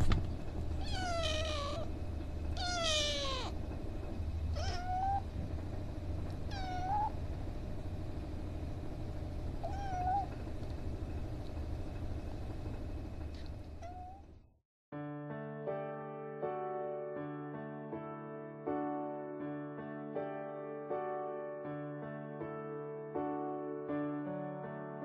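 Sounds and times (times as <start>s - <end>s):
kitten meowing: 0.8s - 1.9s, 2.6s - 3.6s, 4.5s - 5.3s, 6.5s - 7.2s, 9.6s - 10.4s, 13.8s - 14.2s.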